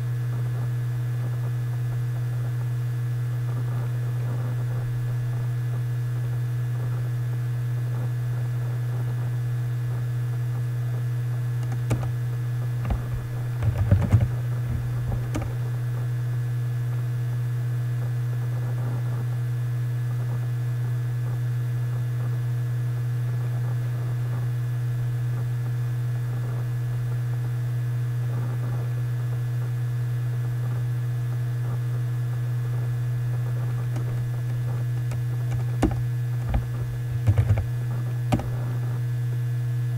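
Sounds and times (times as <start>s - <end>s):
low electrical hum: 0.0s - 39.9s
keyboard typing and clicks: 11.6s - 12.1s, 12.8s - 15.6s, 34.0s - 37.7s, 38.3s - 38.6s.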